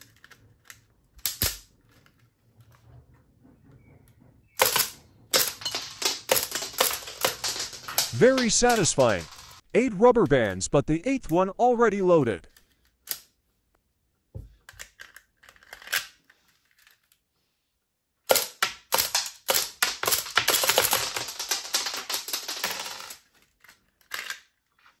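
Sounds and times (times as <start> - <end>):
toy gun plastic clatter: 4.6 - 9.6, 18.3 - 24.6.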